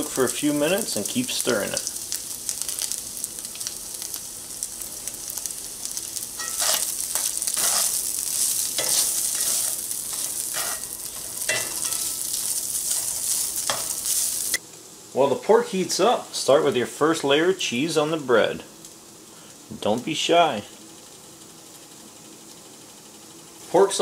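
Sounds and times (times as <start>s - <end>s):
meat sizzling in oil: 0.0s - 15.1s
spatula scraping a pan: 6.4s - 14.4s.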